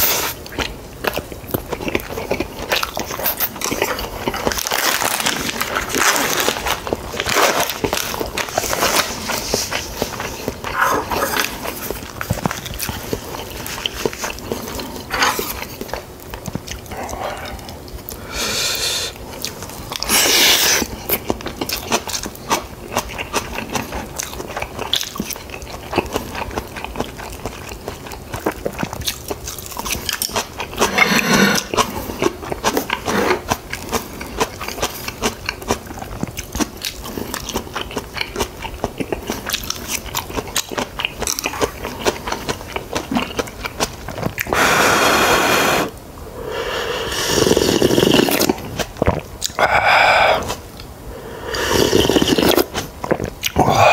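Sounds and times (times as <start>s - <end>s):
close chewing and crunching: 0.0s - 46.0s, 46.9s - 53.9s
slurp of broth: 30.8s - 31.9s, 44.4s - 48.6s, 49.6s - 50.6s, 51.2s - 53.9s
mouth clicks: 47.1s - 53.9s.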